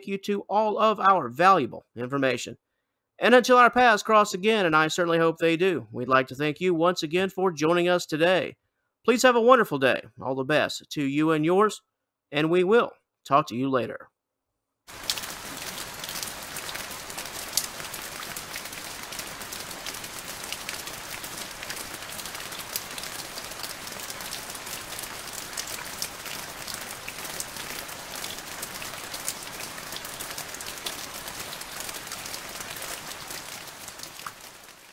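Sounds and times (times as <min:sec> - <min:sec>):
steady rain: 0:14.9 - 0:34.9.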